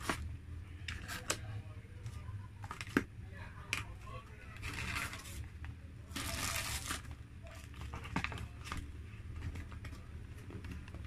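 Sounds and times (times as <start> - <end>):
paper wrapper rustling: 4.5 - 5.5, 6.1 - 9.9.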